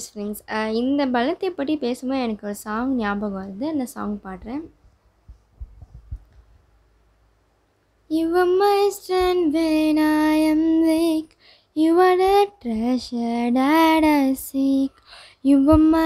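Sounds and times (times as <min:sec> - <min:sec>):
woman singing unaccompanied: 0:08.1 - 0:16.0.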